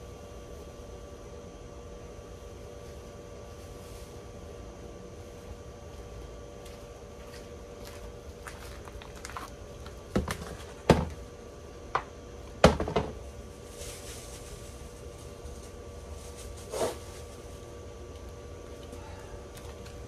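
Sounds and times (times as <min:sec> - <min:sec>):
shoe crunching wet floral foam: 0:07.3 - 0:09.6.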